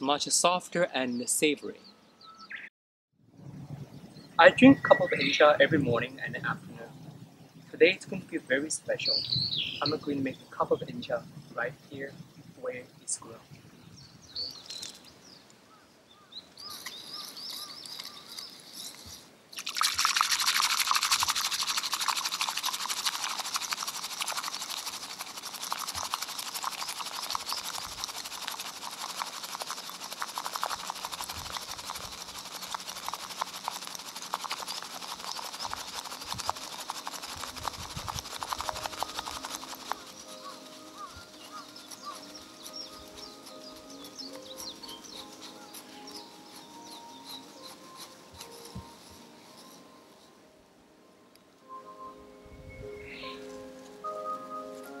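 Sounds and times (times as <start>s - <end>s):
bamboo whisk frothing tea: 16.7s - 50.3s.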